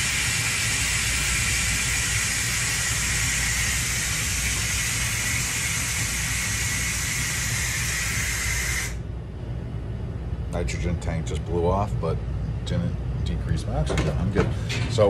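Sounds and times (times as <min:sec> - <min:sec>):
gas venting hiss with whistle: 0:00.0 - 0:09.0.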